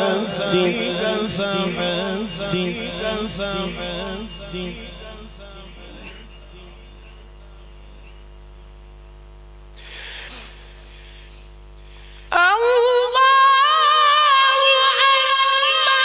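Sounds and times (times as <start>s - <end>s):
man reciting melodically: 0.0s - 7.7s
sound system hum: 0.0s - 16.0s
short hiss: 9.7s - 12.3s.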